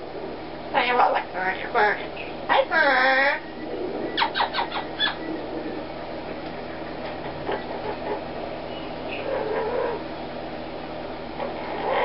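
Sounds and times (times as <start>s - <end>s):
steady background noise: 0.0s - 12.0s
parrot squawking: 0.7s - 3.5s, 4.2s - 5.3s, 7.2s - 8.4s, 9.0s - 10.0s, 11.4s - 12.0s.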